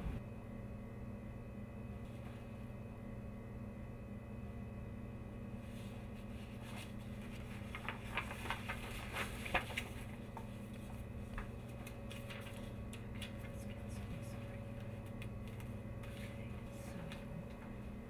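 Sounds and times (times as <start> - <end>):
low hum: 0.0 - 18.0
paper rustling on a table: 5.6 - 17.9.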